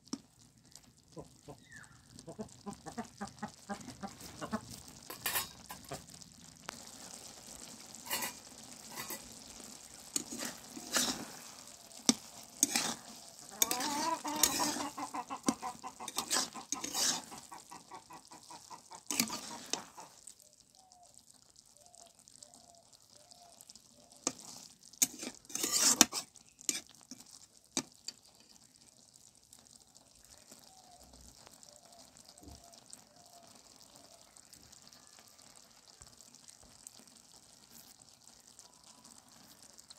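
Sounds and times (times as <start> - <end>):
sauce sizzling: 0.0 - 39.9
spatula scraping iron pan: 5.0 - 5.9, 8.0 - 17.5, 19.0 - 20.0, 24.3 - 27.0.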